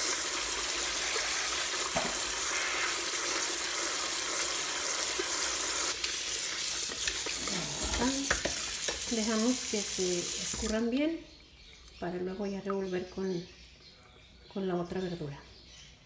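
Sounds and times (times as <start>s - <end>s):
tap water running: 0.0s - 11.0s.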